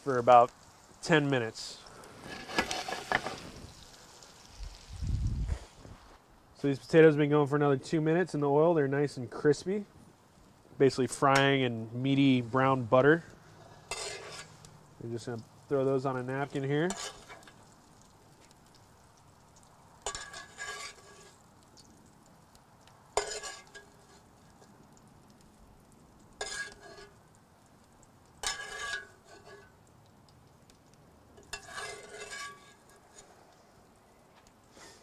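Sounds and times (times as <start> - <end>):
metal spoon scraping cast iron pan: 2.2 - 3.4, 13.4 - 14.7, 15.8 - 17.7, 20.0 - 21.4, 23.2 - 24.3, 26.4 - 27.2, 28.4 - 29.8, 31.4 - 33.4.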